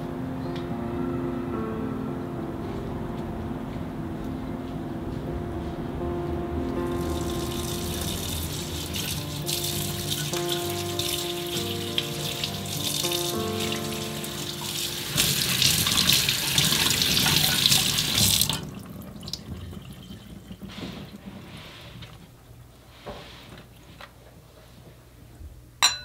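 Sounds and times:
soft background music: 0.0 - 19.2
kitchen faucet running into sink: 7.1 - 21.2.

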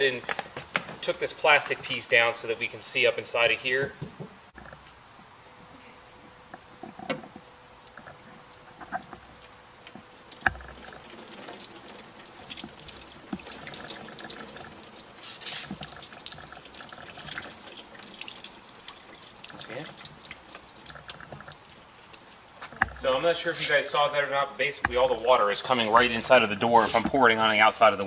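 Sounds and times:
water dripping onto sheet metal: 7.8 - 28.0.

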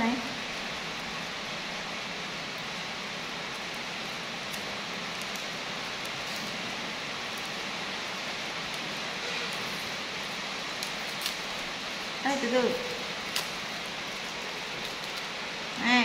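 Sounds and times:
steady hiss: 0.0 - 16.0
plastic wrapper crinkling: 12.8 - 15.7.

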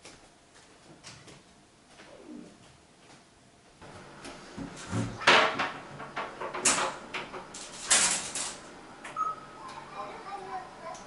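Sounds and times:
cupboard door opening and closing: 4.6 - 8.3.

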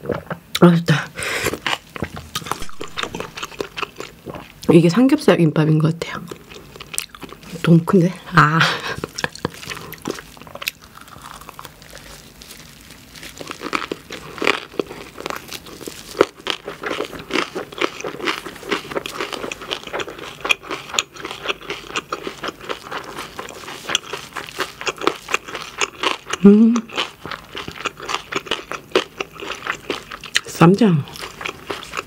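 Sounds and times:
chewing with wet mouth sounds: 1.4 - 4.7, 6.1 - 7.8, 8.7 - 32.0
crisp crunches: 9.0 - 30.5.

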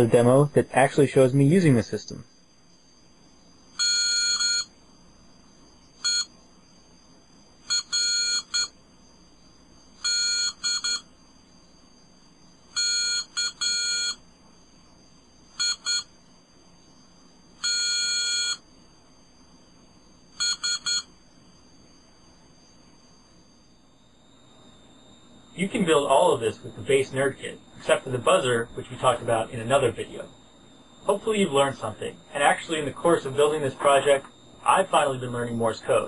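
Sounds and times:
buzzer beeping morse code: 3.7 - 4.8, 5.9 - 6.4, 7.6 - 8.9, 9.9 - 11.2, 12.6 - 14.3, 15.5 - 16.2, 17.6 - 18.7, 20.3 - 21.8, 23.3 - 36.0.

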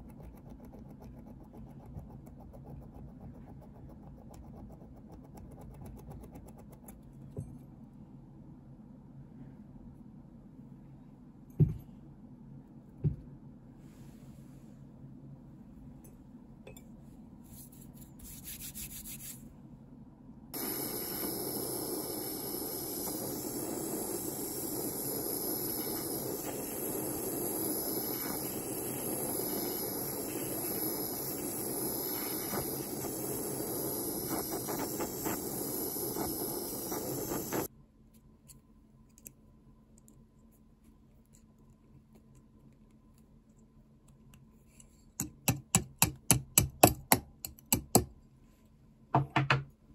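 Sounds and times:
file strokes on brass: 17.5 - 19.5
gas torch flame hissing: 20.5 - 37.7.

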